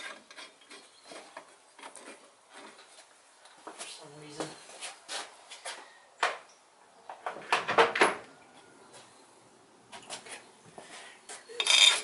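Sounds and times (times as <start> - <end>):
metal bolts clinking and rattling: 11.6 - 12.0.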